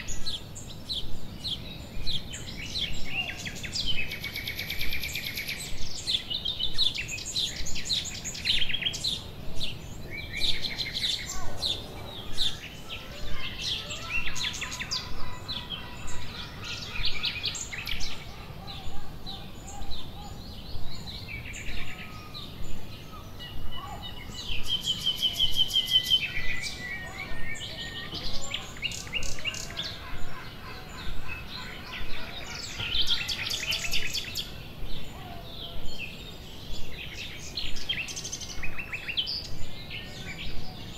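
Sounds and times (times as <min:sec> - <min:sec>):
songbirds singing and chirping: 0:00.0 - 0:40.9.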